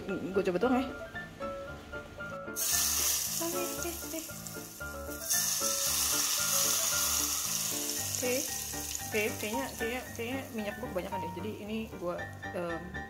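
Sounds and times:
hot oil sizzling: 2.5 - 11.6.

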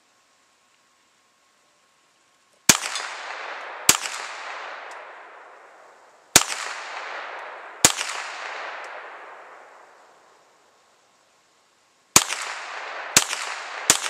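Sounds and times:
pistol shots echoing: 2.7 - 10.4, 12.2 - 14.0.

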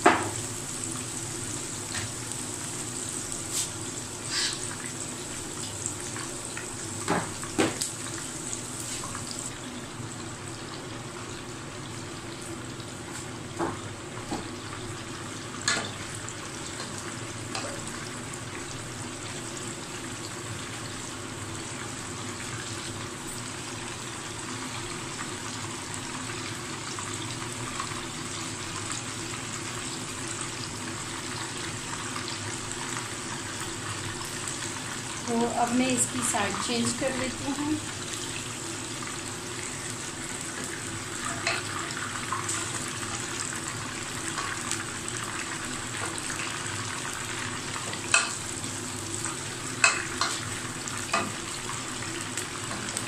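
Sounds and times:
meat sizzling in hot oil: 0.0 - 53.0.

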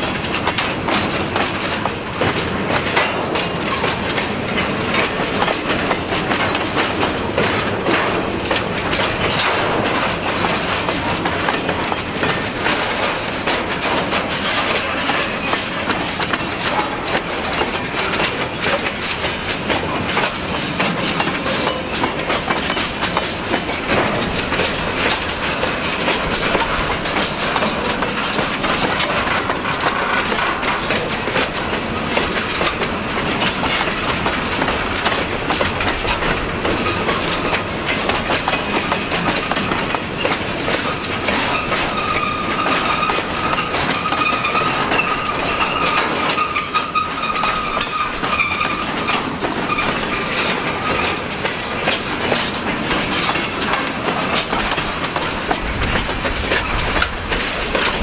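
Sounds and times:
train wheels clicking over rail joints: 0.0 - 58.0
faint high wheel squeal: 41.5 - 49.0.

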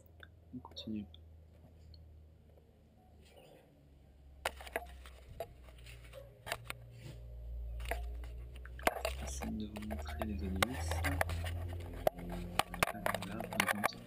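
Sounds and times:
low steady rumble: 0.0 - 14.0
plastic clicks and knocks: 7.8 - 14.0.

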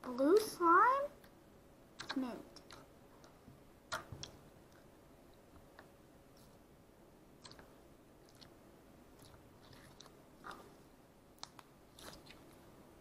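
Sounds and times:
wet clicks and pops: 2.0 - 2.9, 3.9 - 4.4
slime squishing: 2.0 - 3.3, 7.4 - 12.8.

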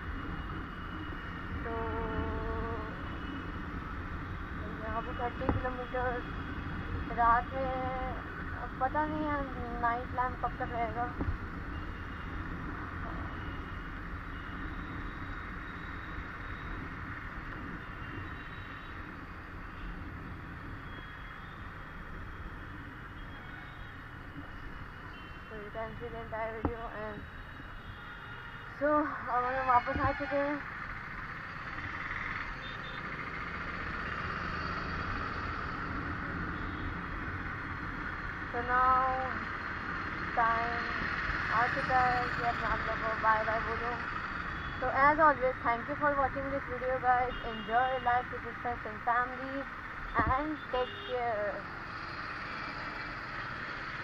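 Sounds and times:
motorcycle engine and road noise: 0.0 - 54.0
motorcycle running: 28.8 - 54.0.

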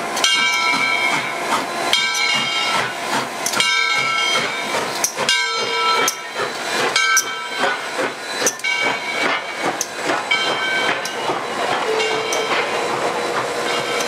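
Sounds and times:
steam locomotive passing: 0.0 - 14.0
high ringing tones: 11.8 - 12.8.

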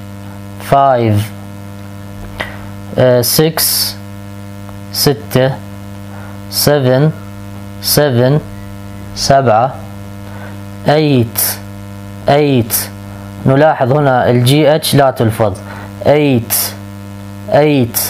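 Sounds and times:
low electrical hum: 0.0 - 18.0
person speaking: 0.6 - 1.4, 2.0 - 4.0, 4.9 - 5.7, 6.5 - 16.8, 17.5 - 18.0.

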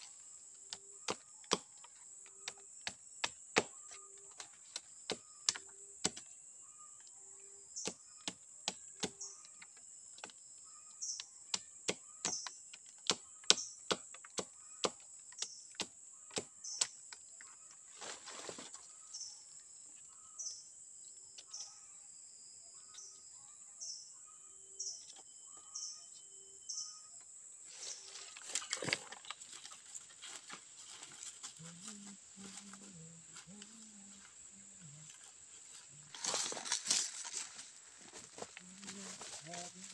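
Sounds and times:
bird calling: 3.6 - 6.0, 10.6 - 19.4, 20.0 - 20.7
rustle: 17.5 - 20.5, 27.5 - 39.9.

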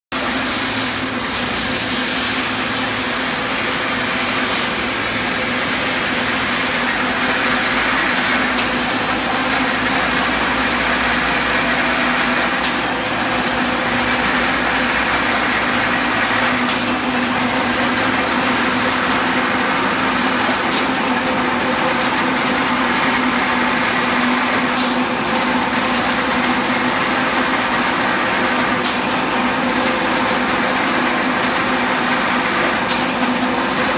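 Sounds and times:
wire cutting machine hum: 0.1 - 33.9.

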